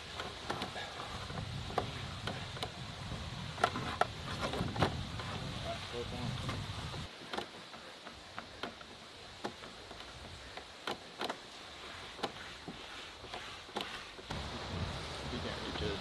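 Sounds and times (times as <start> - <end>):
faint high-pitched hiss: 0.0 - 16.0
light clicks and knocks: 0.1 - 2.8, 6.4 - 14.4.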